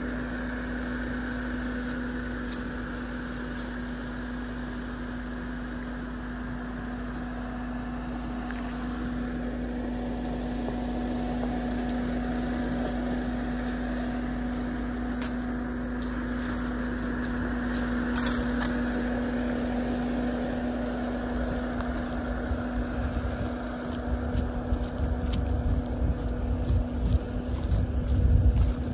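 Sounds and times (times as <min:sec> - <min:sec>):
diesel engine running: 0:00.0 - 0:28.9
wind buffeting microphone: 0:22.2 - 0:28.9.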